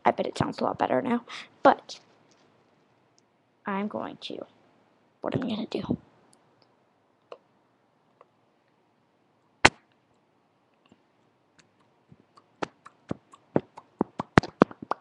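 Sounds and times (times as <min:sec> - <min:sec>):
mouth clicks into microphone: 0:11.6 - 0:15.0.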